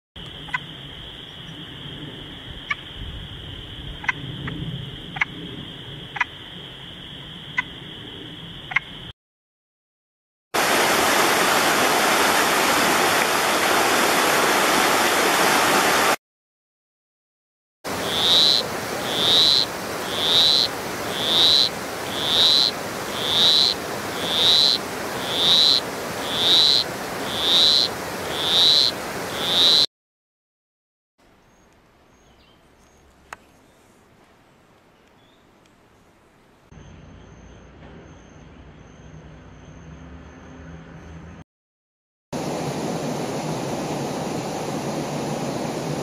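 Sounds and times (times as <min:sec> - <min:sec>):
frog high chirps: 0:03.9 - 0:05.3, 0:06.1 - 0:06.6, 0:08.5 - 0:09.1, 0:18.0 - 0:29.9
rushing mountain stream: 0:10.6 - 0:16.2, 0:17.9 - 0:29.8
steady background hiss: 0:17.9 - 0:29.6.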